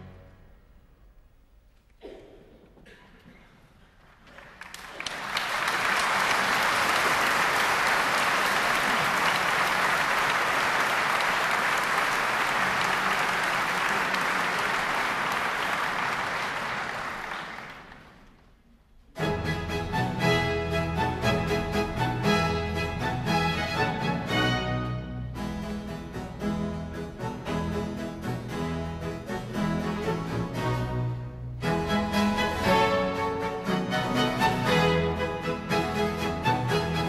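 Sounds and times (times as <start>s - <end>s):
audience applauding: 4.0s - 18.5s.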